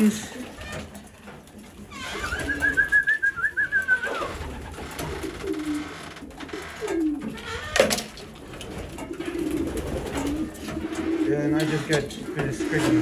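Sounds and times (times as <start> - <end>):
pigeons cooing: 0.0 - 13.0
high wavering whistle: 2.2 - 4.3.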